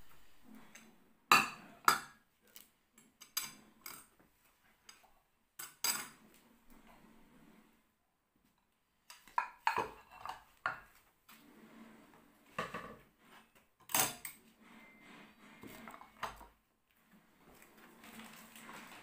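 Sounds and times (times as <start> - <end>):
dishes and cutlery clinking: 5.6 - 6.2, 9.1 - 11.0, 13.8 - 15.0.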